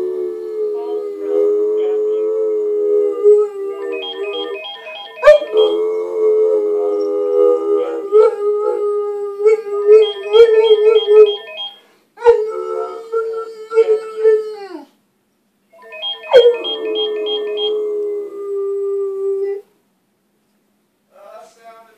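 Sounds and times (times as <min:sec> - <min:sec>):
dog howling: 0:00.0 - 0:04.6, 0:05.2 - 0:11.4, 0:12.2 - 0:14.9, 0:15.8 - 0:19.7.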